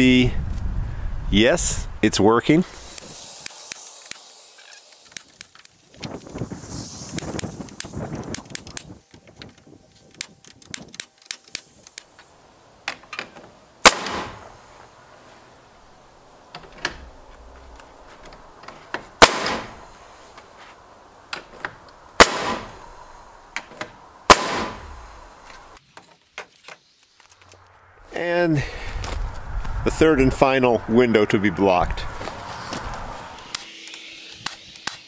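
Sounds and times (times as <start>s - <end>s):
nail gun bangs: 13.8s - 14.5s, 19.2s - 19.8s, 22.2s - 22.8s, 24.3s - 24.8s.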